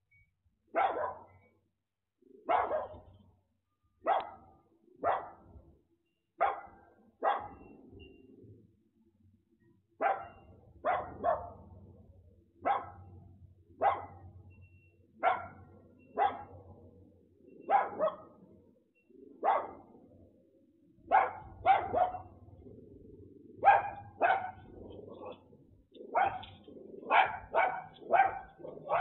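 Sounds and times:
small dog barking: 0.7s - 1.4s, 2.4s - 3.1s, 4.0s - 5.5s, 6.4s - 7.7s, 10.0s - 11.6s, 12.6s - 13.1s, 13.8s - 14.2s, 15.2s - 16.6s, 17.7s - 18.4s, 19.4s - 19.9s, 21.1s - 22.4s, 23.6s - 29.0s.

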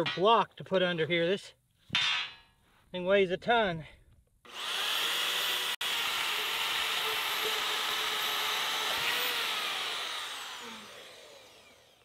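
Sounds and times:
band saw cutting metal pipe: 4.5s - 12.0s.

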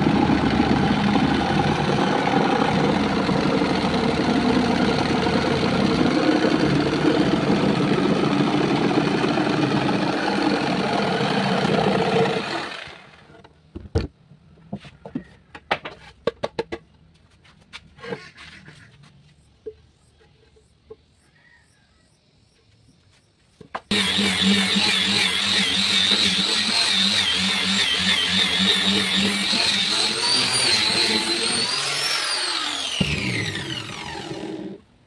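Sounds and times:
electric jigsaw cutting wood: 0.0s - 13.3s, 23.9s - 34.9s
knocks and clicks of handling: 13.4s - 17.1s.

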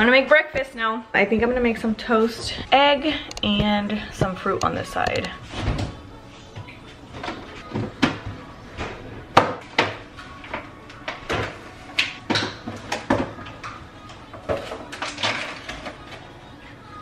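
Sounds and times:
plastic containers clattering on countertop: 14.4s - 16.2s.

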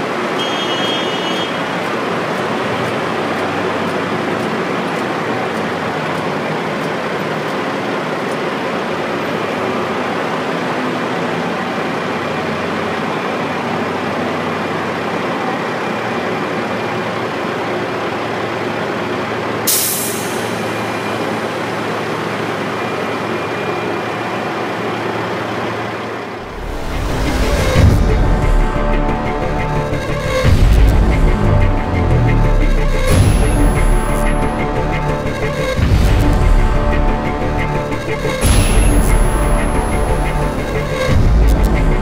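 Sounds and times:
diesel engine running: 1.5s - 42.0s
air brake hiss: 19.7s - 21.4s.

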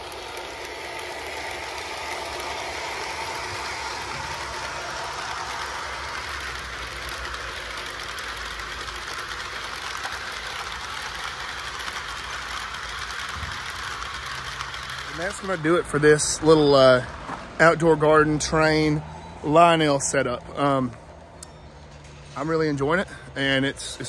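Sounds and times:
wheels clicking over track: 0.0s - 18.7s
model train motors whirring: 0.0s - 24.0s.

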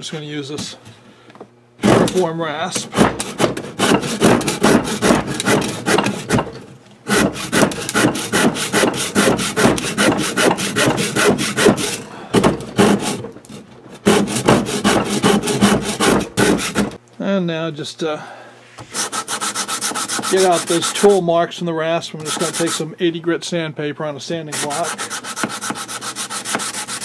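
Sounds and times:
hand rasp cutting wood: 1.8s - 6.5s, 7.1s - 17.0s, 18.9s - 21.2s, 22.2s - 22.8s, 24.5s - 27.0s.

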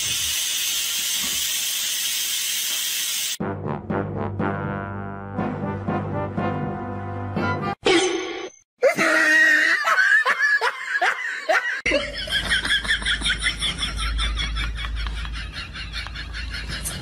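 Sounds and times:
person laughing: 8.8s - 17.0s.

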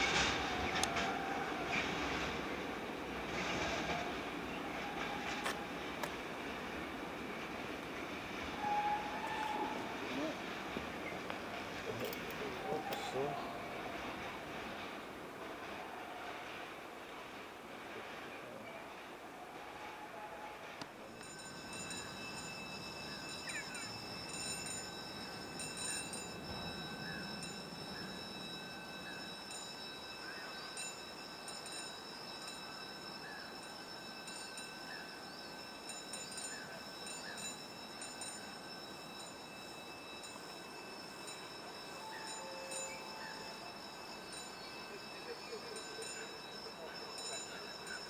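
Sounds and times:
electric locomotive whine: 0.0s - 48.0s
low train rumble: 0.0s - 48.0s
faint chirps: 21.2s - 48.0s.

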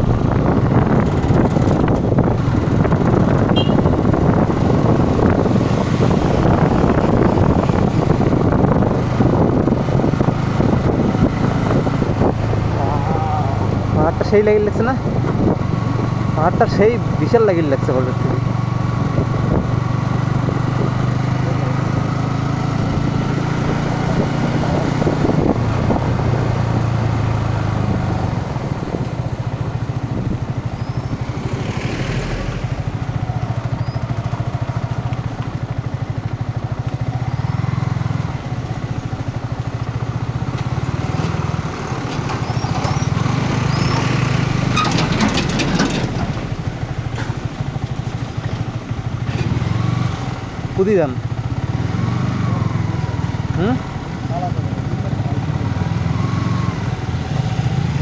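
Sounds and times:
motorcycle engine running: 0.0s - 58.0s
road and wind noise: 0.0s - 58.0s
clicks and rattles: 44.8s - 46.3s.

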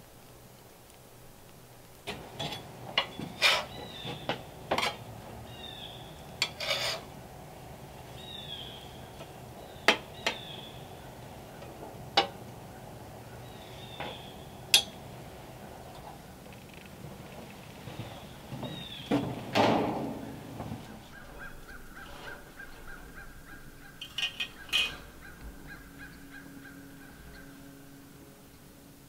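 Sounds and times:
metal spatula scraping griddle: 2.1s - 5.1s, 6.3s - 7.2s, 21.5s - 23.1s, 24.0s - 25.3s.

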